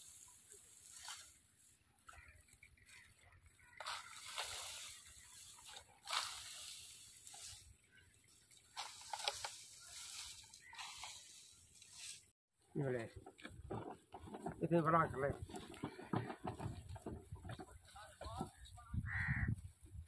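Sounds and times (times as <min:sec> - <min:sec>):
dry stalks rustling: 0:00.0 - 0:20.0.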